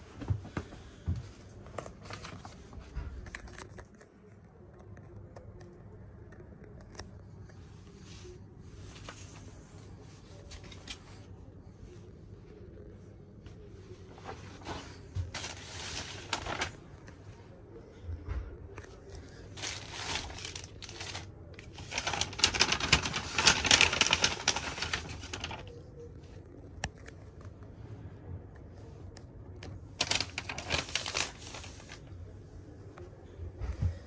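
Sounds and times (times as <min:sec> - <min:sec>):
paper and plastic crinkling: 0:01.5 - 0:04.0, 0:14.0 - 0:17.2, 0:18.8 - 0:26.2, 0:29.6 - 0:32.1.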